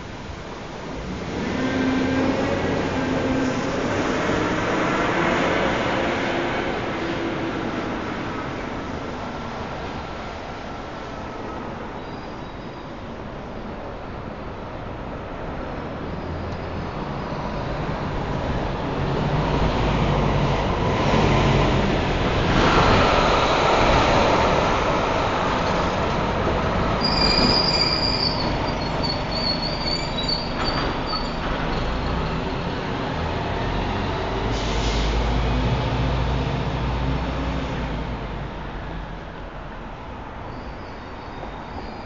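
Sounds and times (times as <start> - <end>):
subway train rumbling: 0.0 - 42.0
wheel squeals: 27.0 - 32.8.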